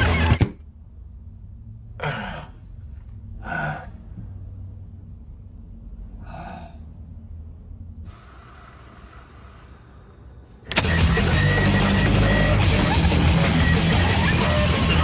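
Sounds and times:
low steady hum: 0:00.6 - 0:10.8
man gasping and breathing heavily: 0:02.0 - 0:04.4, 0:06.2 - 0:07.0.

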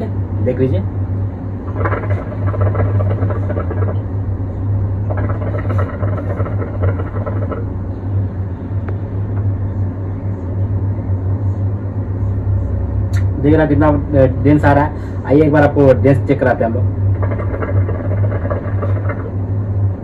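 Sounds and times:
low hum: 0:00.0 - 0:20.0
hookah water bubbling: 0:01.6 - 0:07.9, 0:16.9 - 0:19.5.

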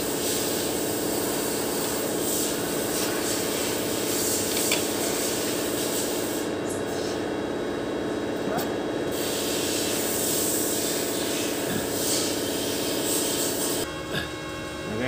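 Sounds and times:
high hissing haze: 0:00.0 - 0:07.0, 0:09.1 - 0:13.9
welding machine humming: 0:00.0 - 0:15.0.

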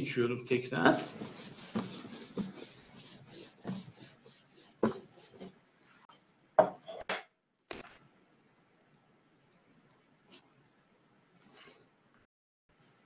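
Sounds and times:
rubbing and scraping on microphone: 0:00.9 - 0:05.6.

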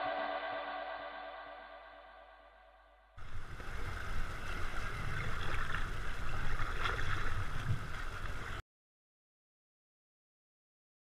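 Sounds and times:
music: 0:00.0 - 0:03.1
river water rushing and splashing: 0:03.2 - 0:08.6
wind rumble on microphone: 0:03.2 - 0:08.6.

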